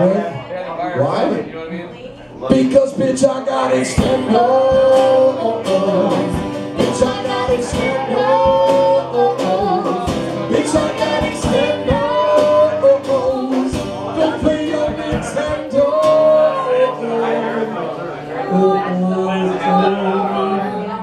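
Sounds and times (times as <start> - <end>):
strummed acoustic guitars: 2.5 - 21.0
drum kit steady beat: 3.9 - 17.7
woman singing: 4.0 - 17.7, 18.3 - 21.0.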